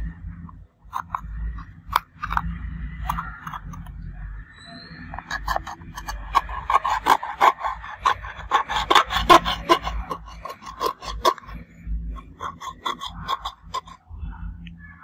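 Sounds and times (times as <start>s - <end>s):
metal tweezers scraping: 0.9s - 4.1s, 4.8s - 14.0s.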